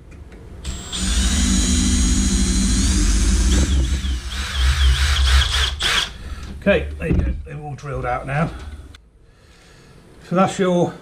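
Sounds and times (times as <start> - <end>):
cordless drill drilling metal: 0.6 - 6.2.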